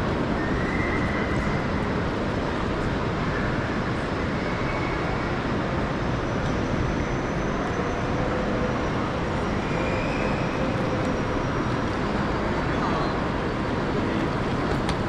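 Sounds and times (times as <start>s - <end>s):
railway station ambient rush: 0.0s - 15.0s.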